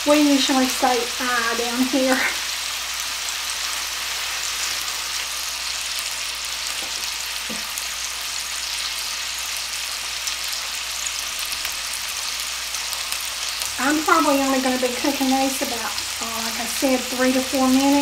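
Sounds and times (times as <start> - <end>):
chicken sizzling in oil: 0.0 - 18.0.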